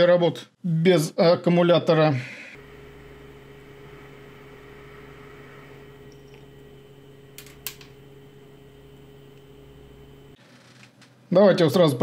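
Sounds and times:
hot-air gun fan humming: 2.5s - 10.4s.

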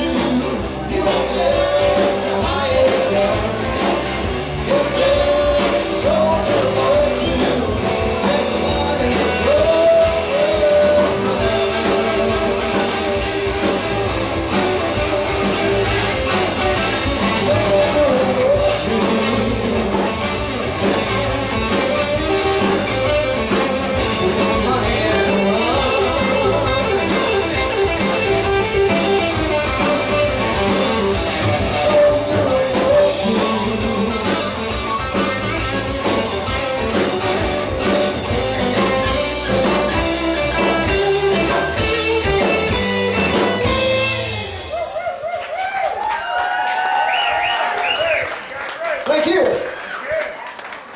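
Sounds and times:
bending electric guitar line: 0.0s - 45.3s
rock band playing: 0.0s - 50.9s.

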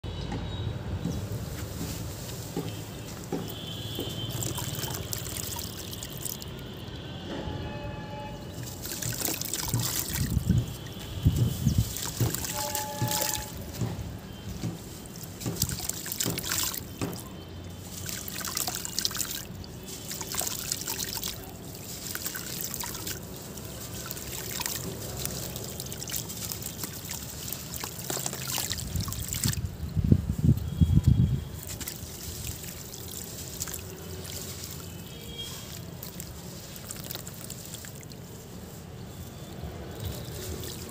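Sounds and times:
sand trickling into water: 1.2s - 7.2s, 8.4s - 40.9s
chunk splashing into water: 8.7s - 13.9s, 14.6s - 17.3s.

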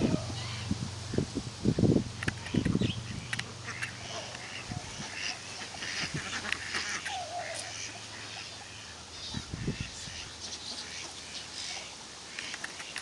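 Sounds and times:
ducks and geese quacking: 0.0s - 1.2s, 2.3s - 13.0s
long wavering goose call: 2.5s - 12.0s.

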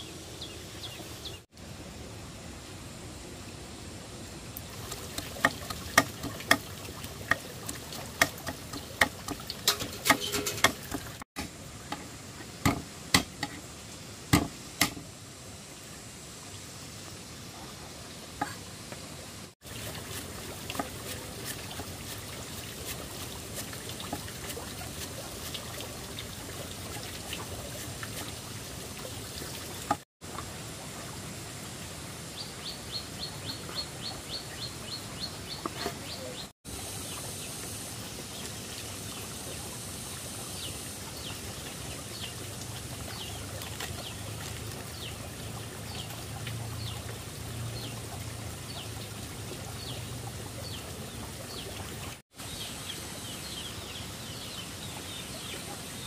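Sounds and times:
water pouring and trickling: 4.5s - 56.0s
sharp clicks and knocks: 8.2s - 12.0s.

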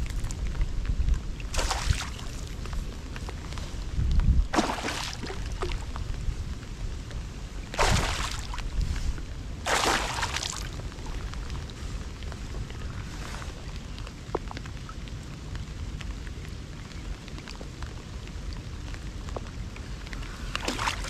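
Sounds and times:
water splashing against boat: 0.0s - 6.2s, 7.6s - 14.9s, 20.1s - 21.0s
wind rumble on microphone: 0.0s - 21.0s.

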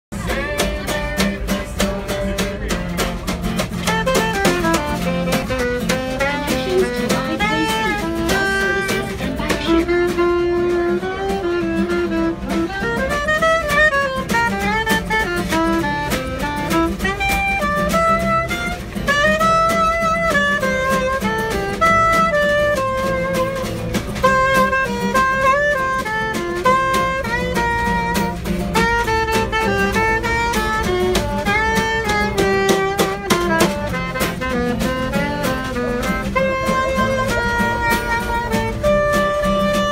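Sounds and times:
strummed acoustic guitar: 0.1s - 39.9s
sliding lead melody: 0.2s - 39.9s.

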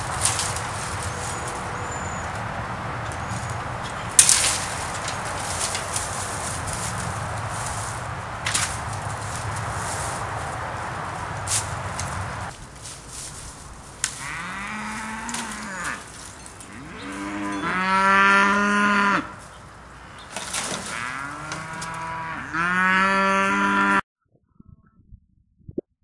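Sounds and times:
cattle mooing: 14.1s - 19.4s, 20.5s - 24.0s.

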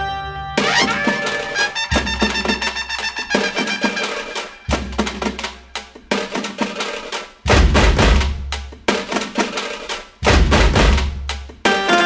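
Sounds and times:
background score music: 0.0s - 12.0s
heavy low drum hits: 7.5s - 8.6s, 10.2s - 11.3s.

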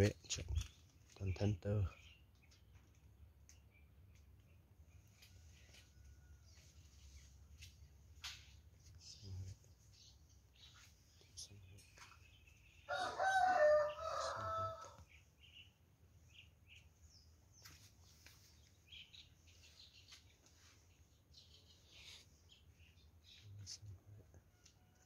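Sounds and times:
small birds chirping: 0.0s - 25.0s
rooster crowing: 12.9s - 15.0s.

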